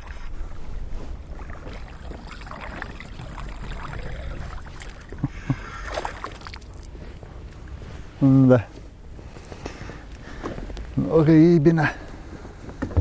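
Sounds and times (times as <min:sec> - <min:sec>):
fish splashing in water: 0:01.4 - 0:06.9.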